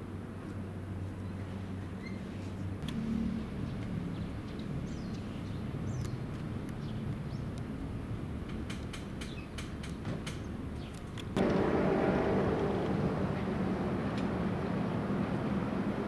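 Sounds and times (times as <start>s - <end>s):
low rumble: 11.4s - 16.0s.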